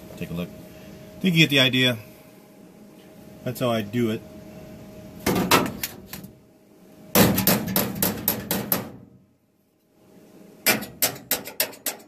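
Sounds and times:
hammer striking sheet steel: 0:07.2 - 0:09.0, 0:10.7 - 0:12.0.

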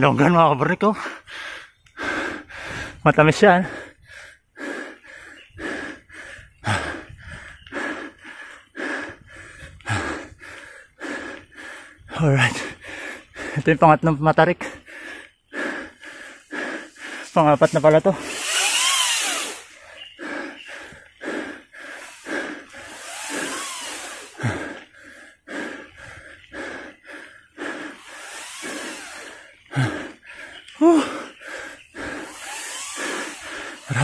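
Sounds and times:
person panting hard: 0:00.9 - 0:13.8, 0:14.5 - 0:34.0.

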